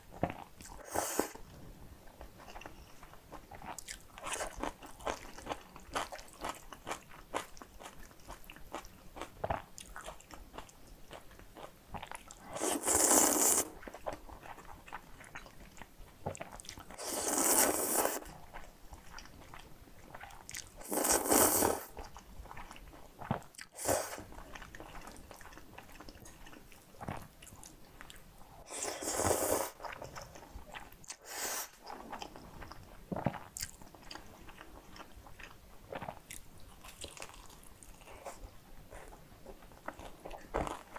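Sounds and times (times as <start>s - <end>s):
slurping noodles: 12.5s - 13.8s, 17.0s - 18.4s, 20.8s - 22.0s, 28.6s - 30.0s.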